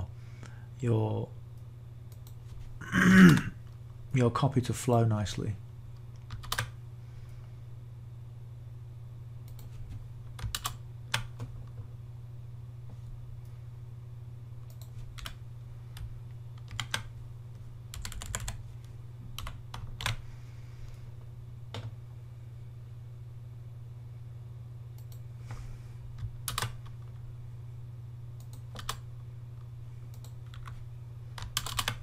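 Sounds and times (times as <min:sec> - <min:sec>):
steady low hum: 0:00.0 - 0:32.0
keyboard typing: 0:06.1 - 0:06.8, 0:09.5 - 0:11.8, 0:14.6 - 0:15.4, 0:16.0 - 0:17.2, 0:17.9 - 0:18.7, 0:19.4 - 0:20.2, 0:26.2 - 0:27.2, 0:28.4 - 0:29.0, 0:30.1 - 0:32.0.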